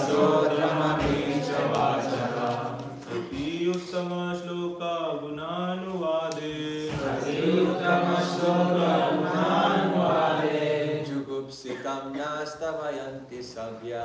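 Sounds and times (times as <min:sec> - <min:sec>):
group of voices chanting: 0:00.0 - 0:03.5, 0:06.8 - 0:11.2.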